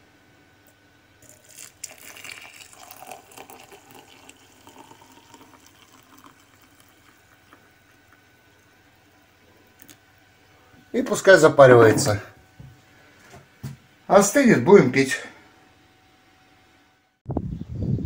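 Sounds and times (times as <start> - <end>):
hot water pouring into glass jar: 1.2 - 8.8.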